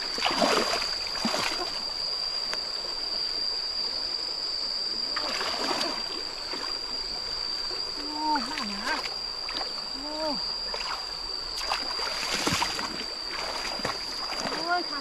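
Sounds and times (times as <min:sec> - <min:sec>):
water sloshing and splashing: 0:00.0 - 0:02.0, 0:05.1 - 0:09.9, 0:10.6 - 0:15.0
steady high-pitched whine: 0:00.0 - 0:15.0.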